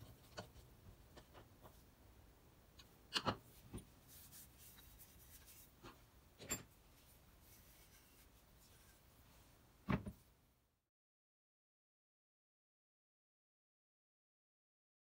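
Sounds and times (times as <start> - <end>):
faint scratchy rub: 3.5 - 6.1, 6.8 - 9.6.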